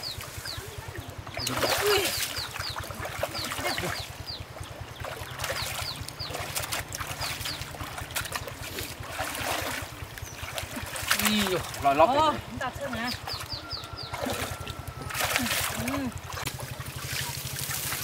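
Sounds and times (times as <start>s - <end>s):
bird chirping: 0.0s - 8.4s, 10.1s - 15.2s
splashing in shallow water: 0.0s - 18.0s
water pump engine running: 0.0s - 18.0s.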